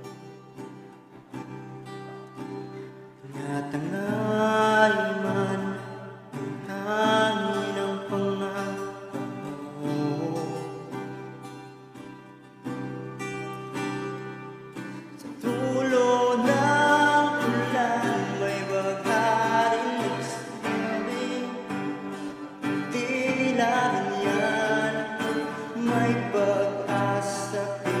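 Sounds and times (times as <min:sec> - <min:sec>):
guitar backing: 0:00.0 - 0:28.0
person singing: 0:03.2 - 0:11.2, 0:15.2 - 0:28.0.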